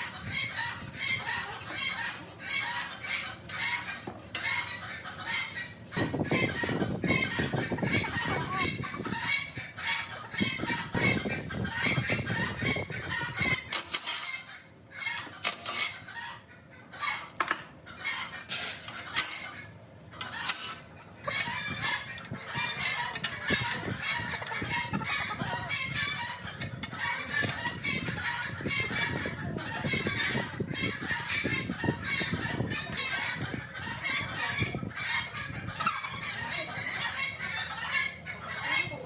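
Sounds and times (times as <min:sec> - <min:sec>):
chickens clucking: 0:00.0 - 0:39.0.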